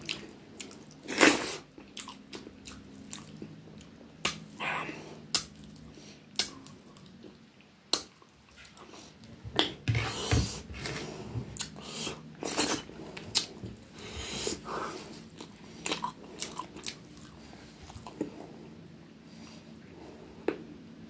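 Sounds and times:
chewing: 0.0s - 4.4s, 11.6s - 18.4s.

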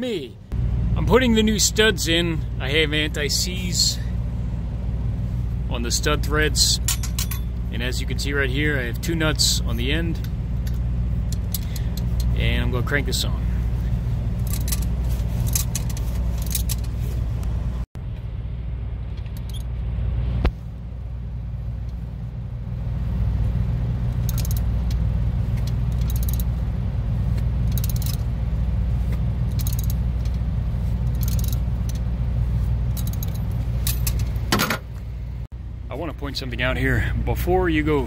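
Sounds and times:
engine idling: 0.4s - 38.0s
socket ratchet clicking: 24.2s - 25.0s, 25.6s - 26.5s, 27.6s - 28.2s, 29.5s - 30.4s, 31.1s - 32.0s, 32.9s - 34.3s.

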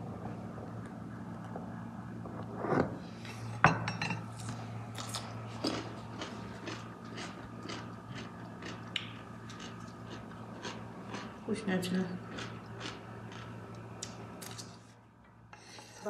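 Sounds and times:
crunchy pickle chewing: 4.9s - 11.4s, 12.3s - 14.7s.

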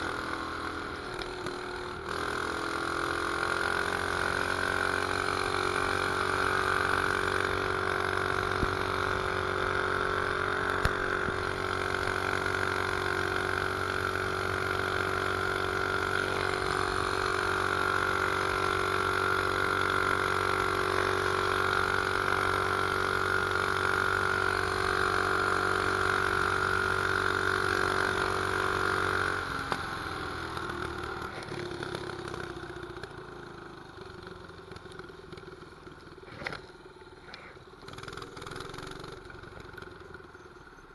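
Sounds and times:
mini bike engine running: 0.0s - 40.9s.

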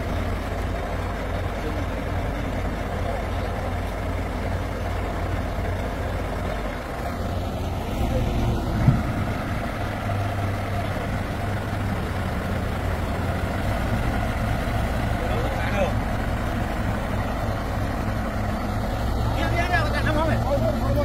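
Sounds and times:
diesel engine idling: 0.0s - 21.0s
brief thump: 8.7s - 9.2s.

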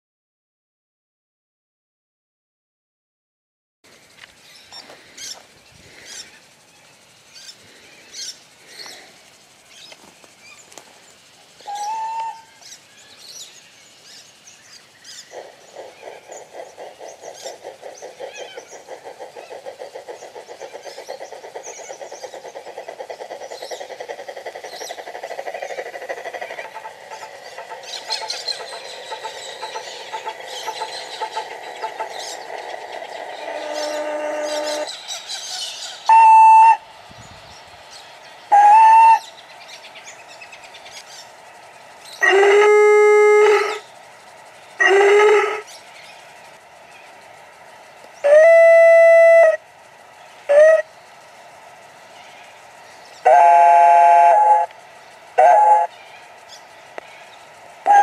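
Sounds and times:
birds chirping: 4.0s - 58.0s
model steam locomotive chuffs: 10.9s - 42.3s, 43.2s - 58.0s.

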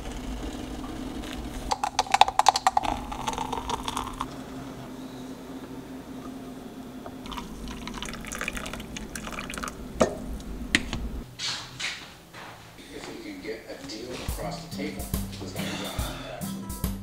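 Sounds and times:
coffee pouring into a mug: 1.2s - 4.4s, 7.1s - 10.1s
water pouring into a press: 7.2s - 9.8s.

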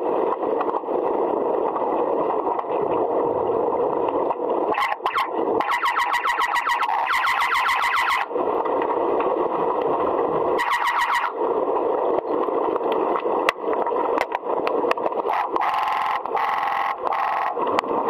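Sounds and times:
pulsed buzzing tone: 4.5s - 8.4s, 9.5s - 11.6s, 15.1s - 18.0s.

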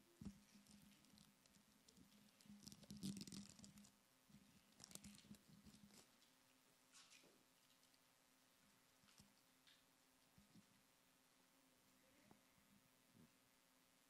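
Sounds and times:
plastic pack crinkling: 0.5s - 3.9s, 4.6s - 6.3s.

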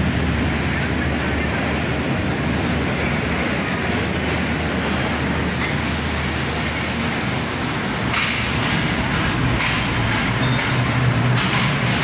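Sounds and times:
train wheels rumbling on track: 0.0s - 12.0s
short bursts of hiss: 5.5s - 9.1s.

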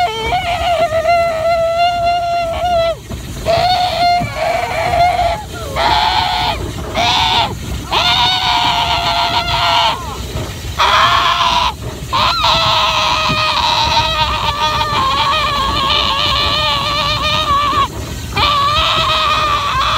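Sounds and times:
child's high-pitched cries: 12.2s - 19.9s.

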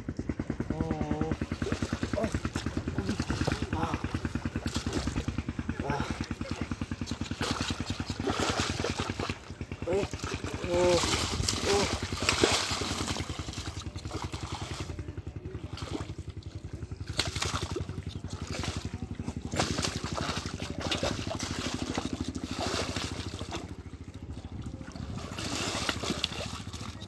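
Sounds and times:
small engine running: 0.0s - 27.0s
muddy water splashing: 0.1s - 27.0s
fish thrashing in water: 1.2s - 27.0s.

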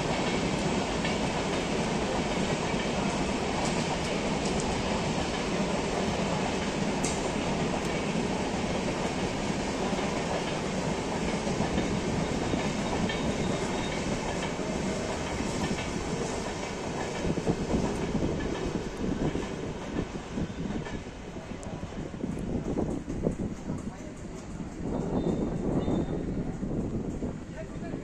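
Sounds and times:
passenger train rolling: 0.0s - 28.0s
wheels clicking over rail joints: 9.8s - 20.2s.

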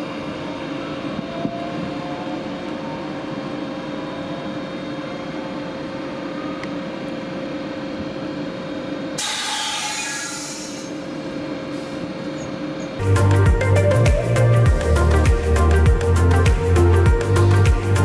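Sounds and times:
electric train humming: 0.0s - 18.0s
hiss of released air: 9.2s - 11.0s
background music with a beat: 13.0s - 18.0s.

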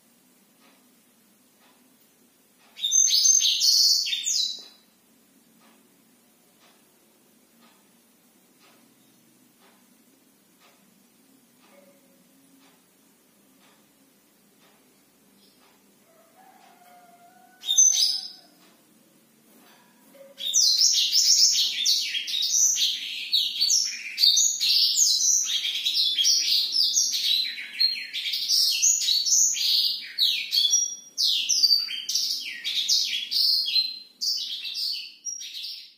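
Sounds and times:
canary singing: 2.6s - 4.9s, 15.4s - 18.8s, 20.0s - 35.9s.

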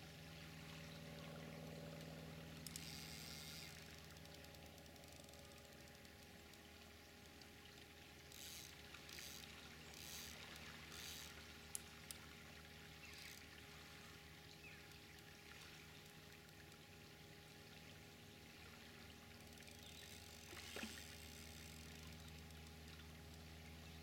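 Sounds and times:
fishing reel winding: 2.6s - 12.3s, 13.0s - 13.5s, 19.4s - 23.7s.

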